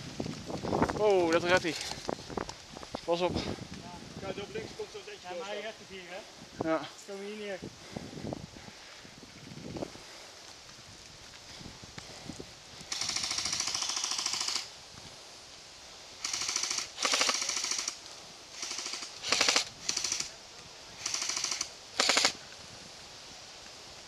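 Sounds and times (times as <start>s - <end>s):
airsoft guns firing bursts: 12.9s - 14.7s, 16.2s - 18.0s, 18.6s - 20.3s, 21.0s - 22.4s.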